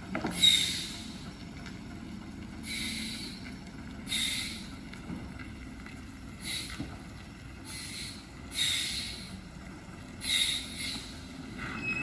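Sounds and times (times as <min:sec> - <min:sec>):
diesel engine running low: 0:00.0 - 0:12.0
air brakes hissing: 0:00.3 - 0:01.3, 0:02.6 - 0:03.5, 0:04.1 - 0:04.8, 0:06.4 - 0:06.8, 0:07.6 - 0:09.4, 0:10.2 - 0:12.0.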